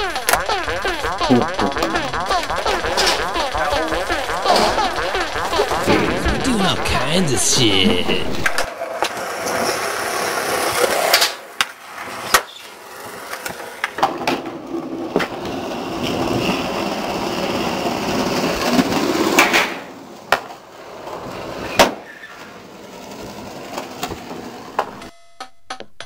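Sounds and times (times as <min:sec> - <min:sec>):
skateboard wheels rolling on concrete: 0:02.0 - 0:25.1
skateboard popping and landing: 0:08.1 - 0:22.5, 0:23.2 - 0:25.1.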